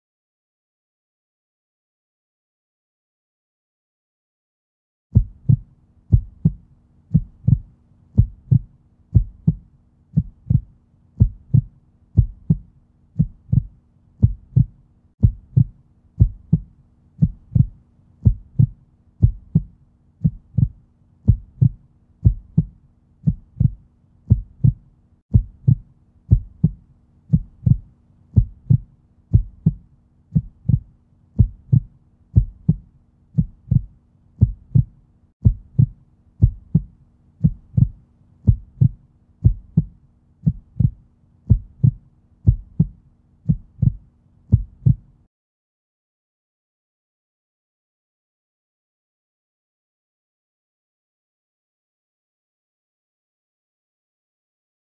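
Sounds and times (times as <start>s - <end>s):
heartbeat thumps: 5.2s - 45.1s.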